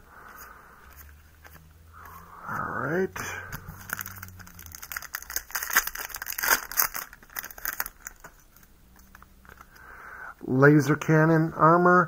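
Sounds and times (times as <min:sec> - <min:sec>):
foil wrapper crinkling and tearing: 0:03.6 - 0:09.8.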